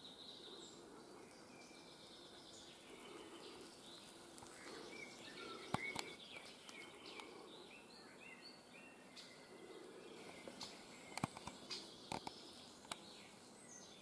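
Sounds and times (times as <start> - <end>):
small birds chirping: 0.0 - 14.0
sharp clicks: 5.7 - 7.3, 11.1 - 13.0.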